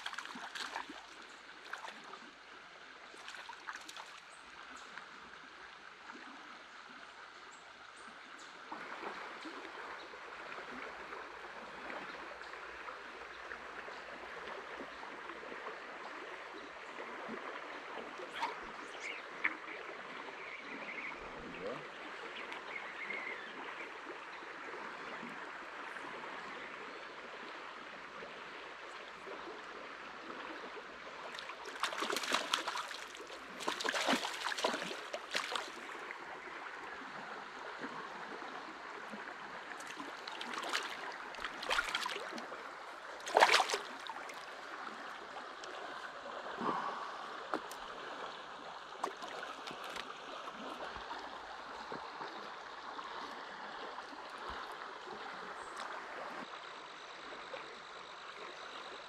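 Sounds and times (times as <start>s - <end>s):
creek water flowing: 0.0s - 59.0s
fish splashing at surface: 31.7s - 35.8s, 39.8s - 42.4s, 43.2s - 44.1s.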